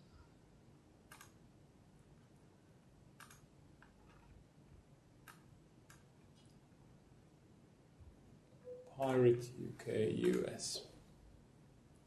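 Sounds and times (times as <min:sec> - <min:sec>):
computer mouse clicks: 0:01.1 - 0:01.4, 0:03.2 - 0:04.3, 0:05.2 - 0:06.5.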